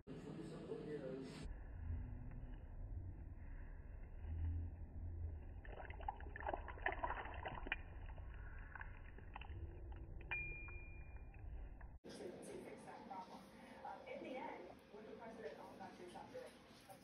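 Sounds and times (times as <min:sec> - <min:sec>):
low rumble: 0:01.5 - 0:12.0
liquid splashing into metal bowl: 0:05.5 - 0:10.8.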